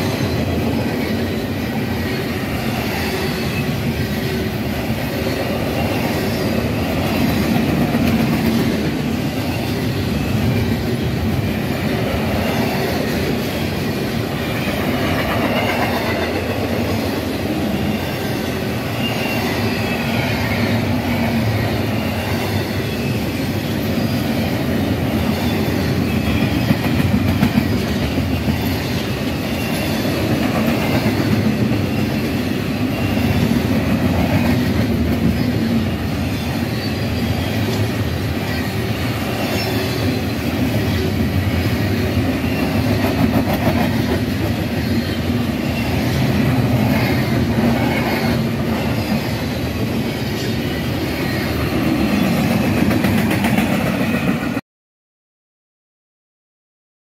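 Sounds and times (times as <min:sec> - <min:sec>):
train wheels rumbling on rails: 0:00.0 - 0:54.6
faint wheel squeal: 0:17.8 - 0:20.8.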